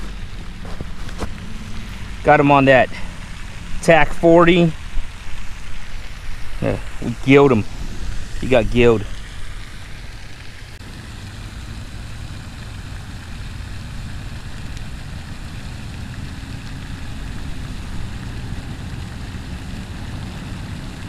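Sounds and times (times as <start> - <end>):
wind buffeting microphone: 3.3 - 9.6.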